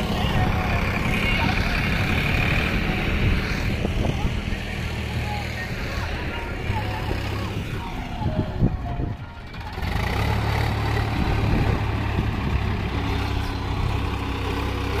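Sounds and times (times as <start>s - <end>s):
tractor diesel engine running: 0.0s - 15.0s.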